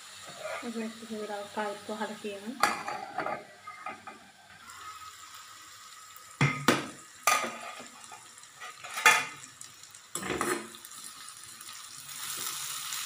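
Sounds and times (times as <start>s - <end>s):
food sizzling in a pan: 0.0s - 13.0s
spoon scraping metal pan: 0.2s - 0.8s, 7.3s - 9.4s.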